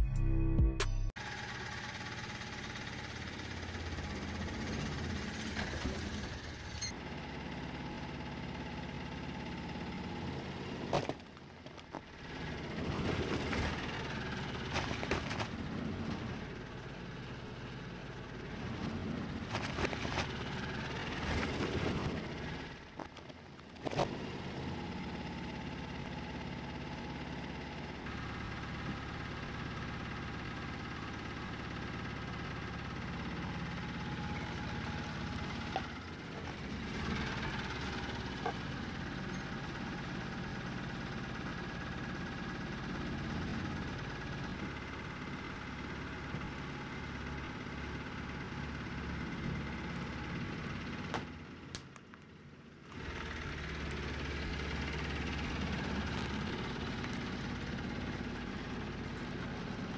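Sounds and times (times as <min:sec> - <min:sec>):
truck engine running: 0:00.0 - 0:59.9
clay pottery cracking under tyre: 0:55.9 - 0:57.4.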